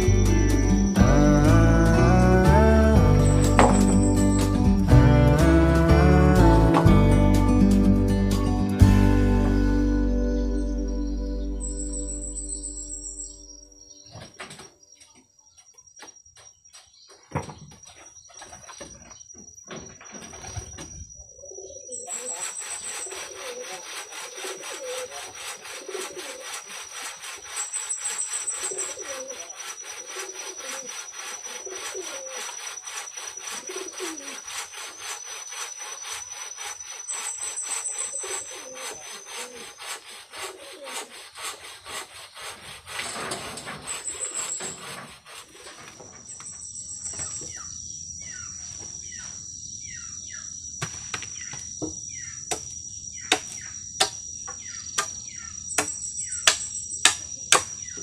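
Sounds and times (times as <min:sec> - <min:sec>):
hand saw cutting wood: 0:01.0 - 0:07.2, 0:22.1 - 0:46.1, 0:55.8 - 0:57.7.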